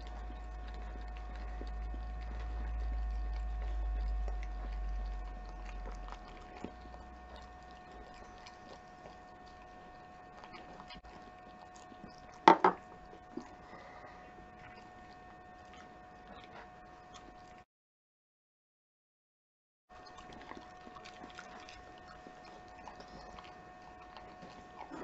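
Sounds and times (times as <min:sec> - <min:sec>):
dog licking a metal spoon: 0:00.0 - 0:13.6, 0:20.0 - 0:25.0
low hum: 0:00.0 - 0:17.6.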